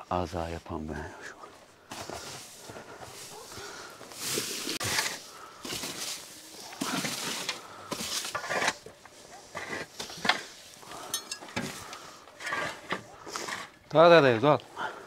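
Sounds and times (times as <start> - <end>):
shovels scraping dirt floor: 1.9 - 14.4
straw tossed into wheelbarrow: 4.2 - 8.8.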